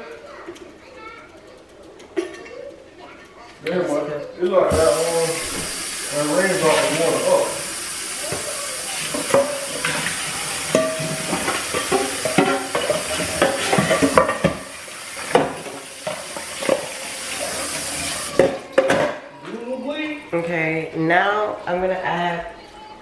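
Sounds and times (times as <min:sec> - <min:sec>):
seafood sizzling in frying pan: 0:04.7 - 0:18.4
utensil scraping and clinking pan: 0:09.1 - 0:14.7.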